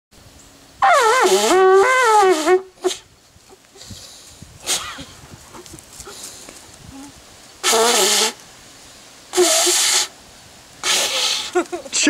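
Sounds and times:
animal horn blast: 0.8s - 3.0s, 7.6s - 8.4s.

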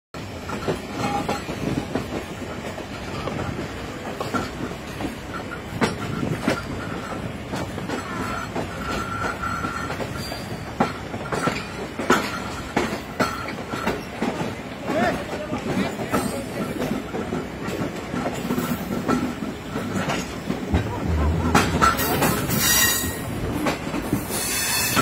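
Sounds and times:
train coach rumbling over rails: 0.1s - 25.0s
high wheel squeal: 22.0s - 23.3s.

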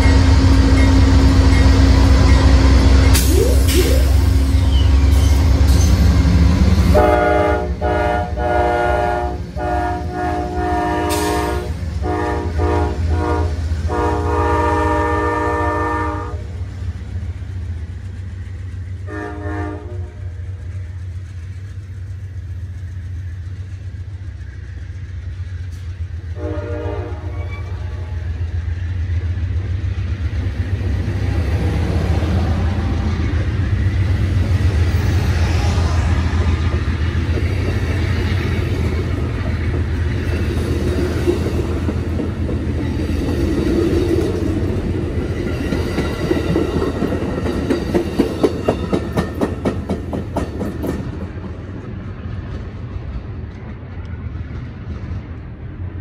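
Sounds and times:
train wheels on rails: 0.0s - 56.0s
locomotive chime horn blasts: 6.9s - 16.5s, 19.1s - 20.4s, 26.4s - 28.4s.

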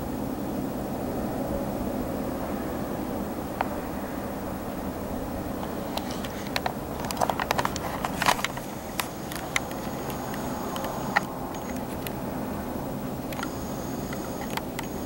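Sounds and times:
steady low hum: 0.0s - 15.0s
camera handling clicks and taps: 5.9s - 12.2s.

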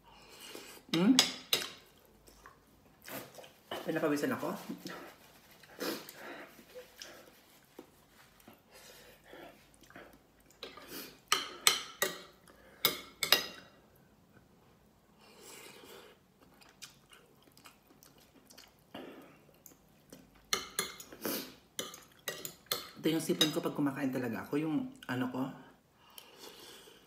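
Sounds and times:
chewing: 1.6s - 3.8s, 9.5s - 10.9s, 16.1s - 21.2s.

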